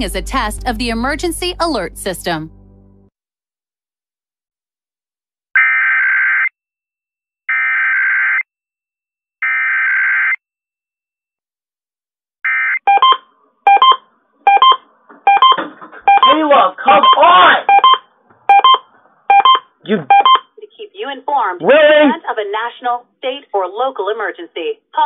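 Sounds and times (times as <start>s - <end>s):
two-tone beep pulses: 12.9s - 16.4s, 17.0s - 20.5s.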